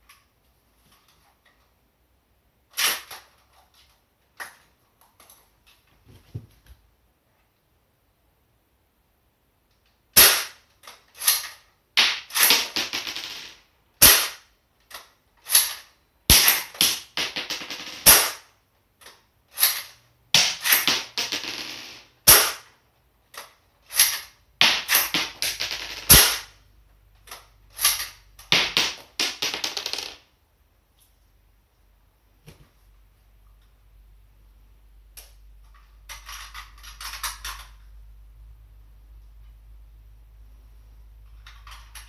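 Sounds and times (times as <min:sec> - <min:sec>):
airsoft rifle shots: 0:10.2 - 0:10.6, 0:14.0 - 0:14.4, 0:15.5 - 0:18.5, 0:22.2 - 0:22.7, 0:24.0 - 0:26.6
rifle clicks and rattles: 0:35.6 - 0:37.9.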